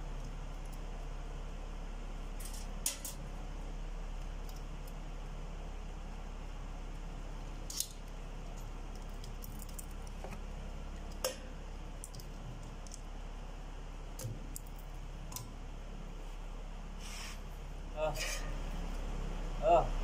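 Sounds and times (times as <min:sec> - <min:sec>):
steady low hum: 0:00.0 - 0:20.0
metal clicks of valve springs: 0:02.4 - 0:03.2.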